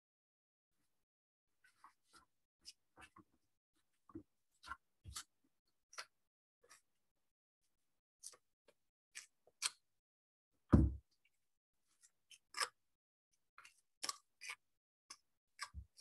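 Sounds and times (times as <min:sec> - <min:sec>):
dull thump: 0:10.7 - 0:11.0.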